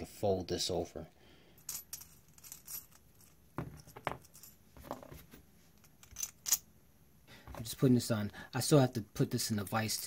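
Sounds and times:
small metal clicks and clinks: 1.6 - 4.6, 5.8 - 6.6.

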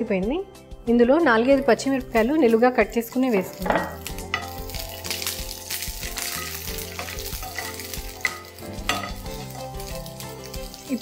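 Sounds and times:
chillies sizzling in oil: 1.1 - 11.0
spatula tapping pan: 6.0 - 9.9.

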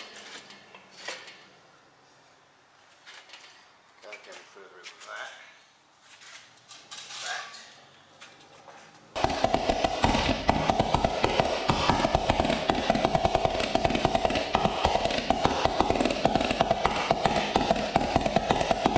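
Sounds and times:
steady engine drone: 9.2 - 18.9.

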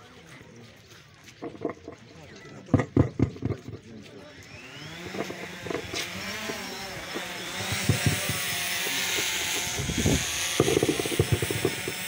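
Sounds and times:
knocks and thumps: 1.4 - 2.0, 2.7 - 3.9, 5.1 - 12.0
small engine running: 2.8 - 12.0.

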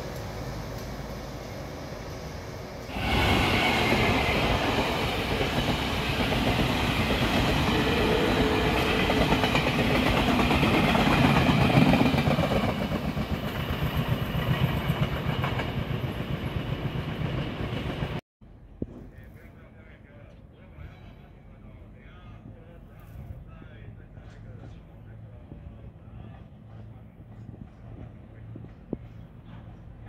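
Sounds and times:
train passing at speed: 0.0 - 18.2, 23.6 - 30.0
clickety-clack of train wheels: 3.5 - 18.2, 26.2 - 30.0.

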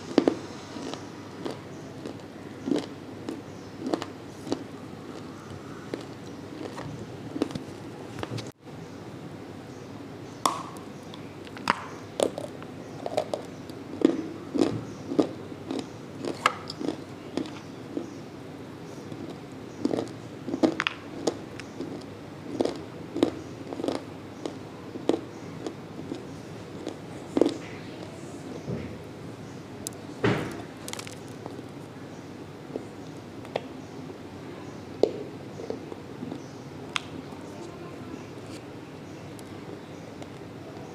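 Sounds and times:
clay being chewed with crunches: 0.1 - 5.3, 5.9 - 7.7, 11.5 - 18.2, 19.1 - 27.6, 30.8 - 31.7.

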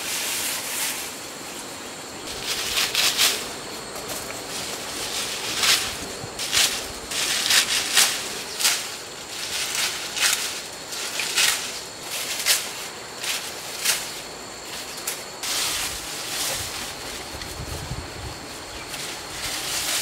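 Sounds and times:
leaves rustling: 0.0 - 20.0.

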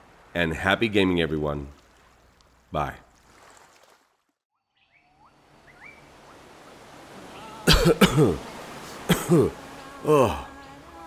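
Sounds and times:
short rising bird chirps: 4.5 - 6.4
loud vocal sounds falling in pitch: 9.1 - 10.6.

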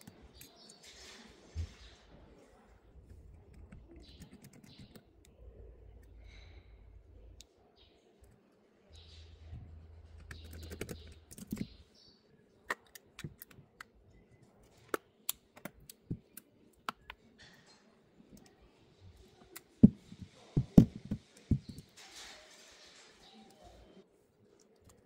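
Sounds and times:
knocks: 19.8 - 21.8.

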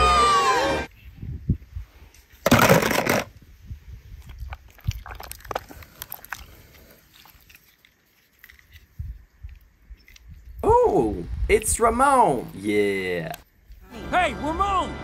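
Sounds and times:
wet squishing slime: 4.1 - 10.5.

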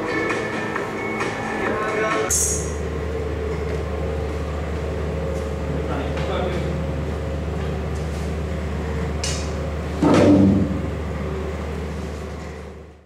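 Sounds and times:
steady low hum: 0.0 - 13.0
sudden loud knock: 10.0 - 10.9.

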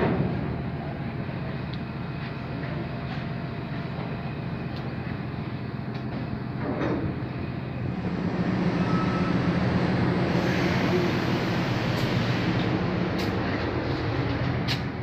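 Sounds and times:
diesel engines droning: 0.0 - 15.0.

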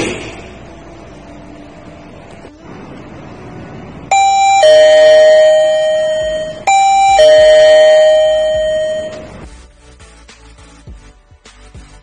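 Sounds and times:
two-tone doorbell chime: 4.1 - 9.4.

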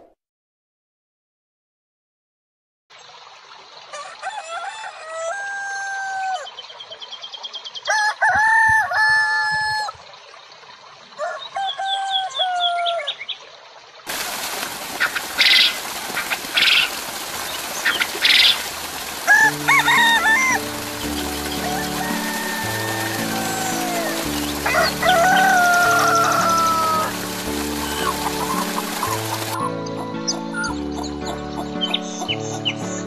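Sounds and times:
stream of water spilling: 2.9 - 29.7
rooster crowing: 3.9 - 6.5, 7.9 - 10.0, 11.2 - 13.1, 19.2 - 29.1
small birds chirping: 14.8 - 33.0.

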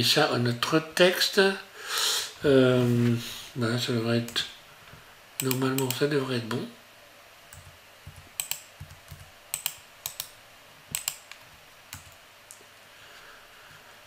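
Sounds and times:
keyboard and mouse clicks: 5.4 - 6.0, 7.5 - 12.6.

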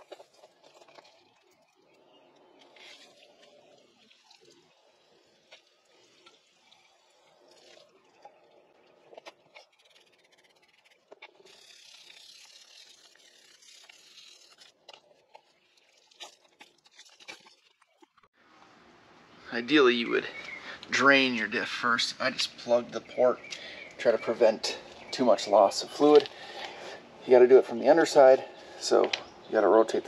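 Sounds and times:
water dripping and splattering: 0.0 - 18.3
hose water spray hiss: 10.6 - 14.7.

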